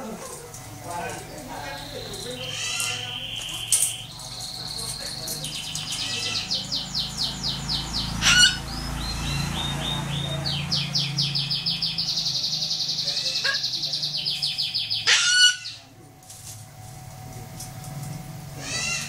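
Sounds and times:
cockatoo screeching: 1.7 - 4.1, 5.8 - 6.8, 8.2 - 8.7, 13.0 - 13.8, 15.0 - 15.9, 18.6 - 19.0.

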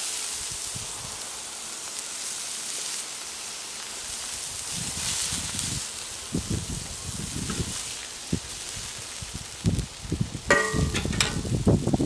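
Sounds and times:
burger patties sizzling: 0.0 - 12.0
metal spatula thuds: 10.5 - 11.5.

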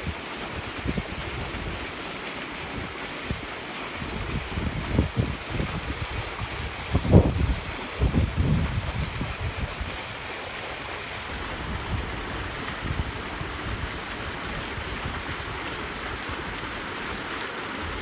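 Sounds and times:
choppy pool water rushing: 0.0 - 18.0
wind buffeting microphone: 2.7 - 18.0.

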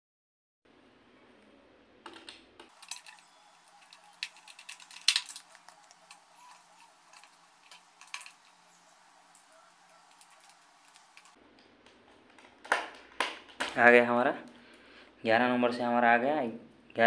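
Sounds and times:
wires and screwdriver clicking: 2.1 - 13.7.

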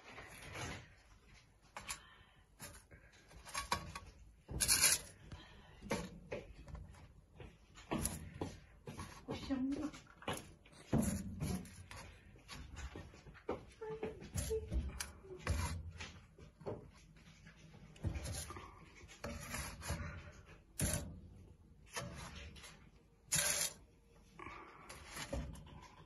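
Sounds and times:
scraping inside metal oven: 2.6 - 5.2, 18.0 - 23.9, 24.9 - 26.0.

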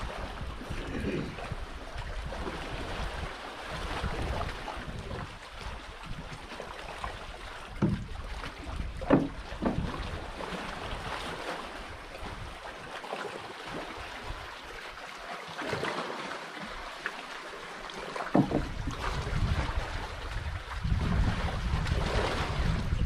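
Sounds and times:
wind rumble on microphone: 0.0 - 12.7, 18.3 - 23.0
water lapping around boat: 0.0 - 23.0
sharp splashes or knocks: 7.7 - 11.4, 18.0 - 19.6.

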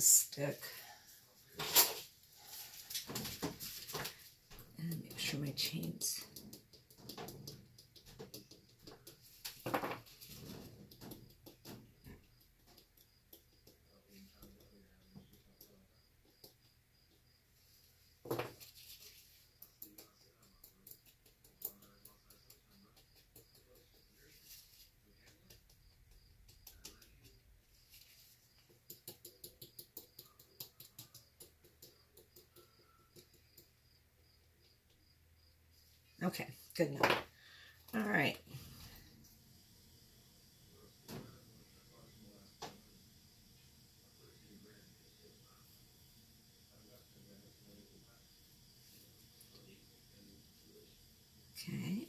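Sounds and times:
stick tapping on paint: 6.2 - 9.4, 10.8 - 17.2, 19.6 - 24.3, 25.1 - 27.4, 28.5 - 33.8.

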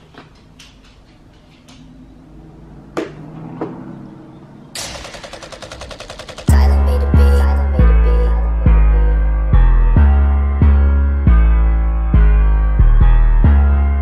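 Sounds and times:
fast rattle of strokes: 4.8 - 6.6
intro music: 4.8 - 14.0
heavy bass hit: 6.5 - 14.0.

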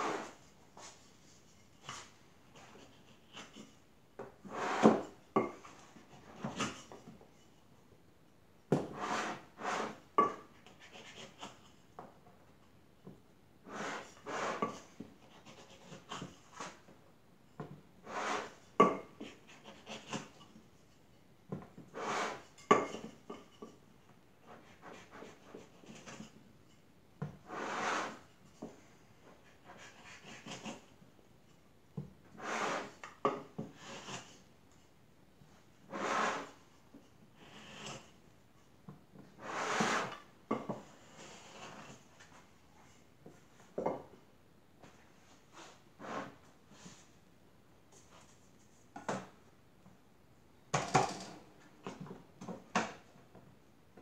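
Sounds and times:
wooden straightedge scraping clay: 0.0 - 7.2, 8.8 - 11.8, 13.6 - 16.9, 18.0 - 20.9, 21.5 - 23.8, 24.4 - 26.4, 27.2 - 31.0, 32.3 - 34.5, 35.8 - 38.2, 39.2 - 43.5, 44.9 - 47.2.

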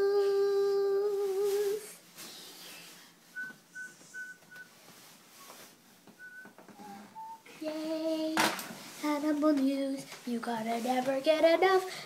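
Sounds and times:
person whistling: 3.4 - 4.7, 6.2 - 7.6.

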